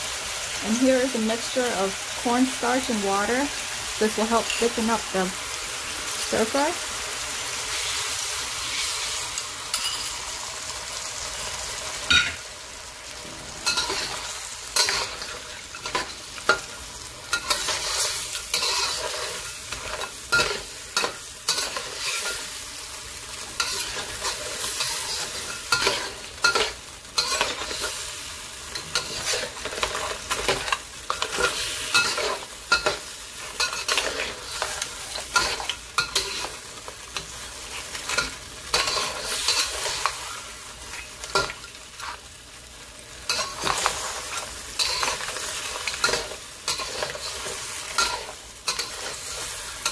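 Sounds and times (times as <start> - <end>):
sauce sizzling in a wok: 0.0 - 49.9
metal spatula scraping a wok: 13.2 - 22.6, 23.6 - 28.1, 28.8 - 42.2, 43.3 - 49.9.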